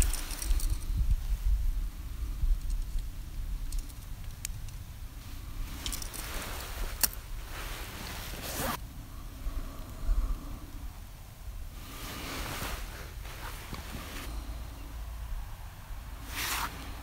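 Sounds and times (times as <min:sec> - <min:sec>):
small gear clicking: 0:00.0 - 0:00.9
steady low rumble: 0:00.0 - 0:17.0
jacket sleeve rustling: 0:05.7 - 0:08.8, 0:11.9 - 0:14.3, 0:16.3 - 0:17.0.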